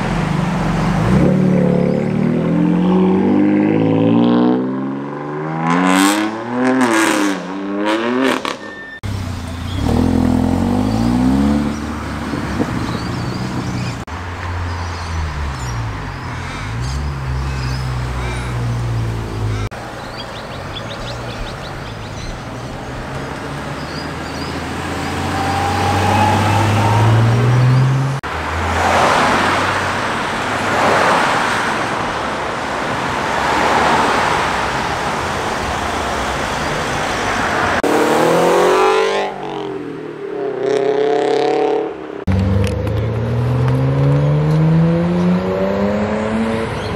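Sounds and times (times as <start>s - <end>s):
car engine accelerating away: 9.1s - 13.7s, 23.0s - 28.2s, 40.6s - 46.9s
engine revving up and down: 9.6s - 14.0s, 37.8s - 46.9s
sports car accelerating past: 40.4s - 46.9s.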